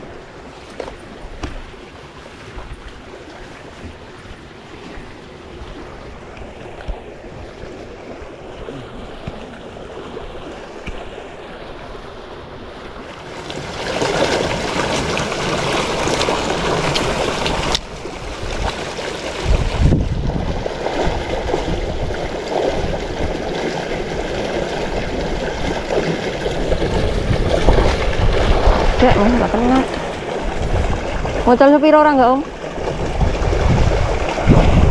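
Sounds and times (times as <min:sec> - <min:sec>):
flowing river water: 0:00.0 - 0:34.9
wind: 0:00.0 - 0:34.9
wind buffeting microphone: 0:14.4 - 0:34.9.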